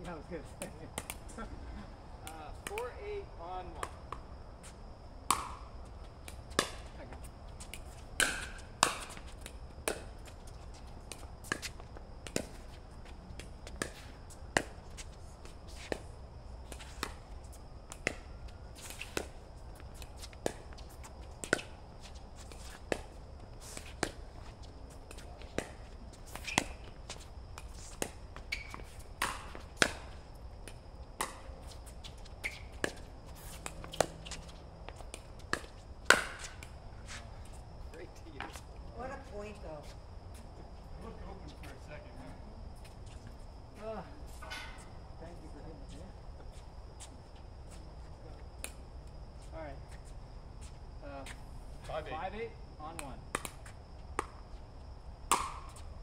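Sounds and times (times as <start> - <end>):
paddles hitting plastic ball: 55.3 - 55.8.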